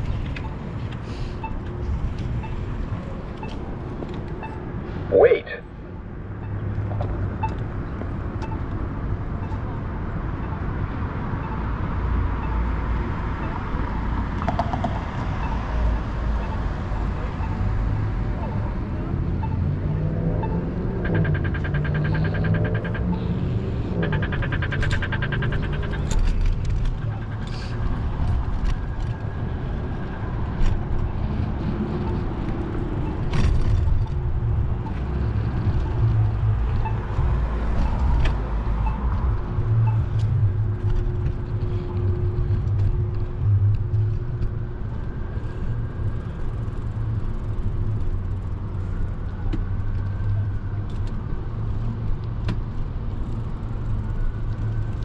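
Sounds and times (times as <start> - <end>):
cars passing: 0.0 - 55.0
pitched drone: 15.5 - 44.5
sharp clicks and knocks: 21.0 - 29.2.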